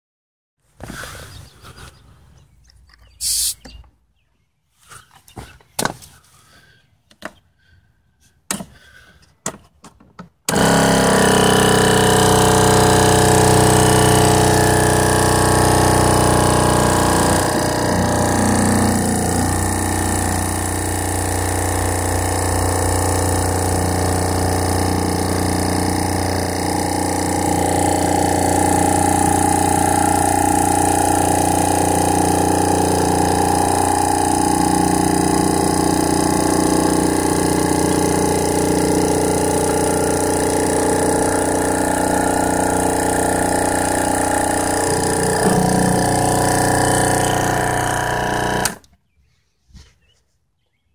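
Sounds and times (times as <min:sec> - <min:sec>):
air compressor motor pumping: 0:10.5 - 0:48.9.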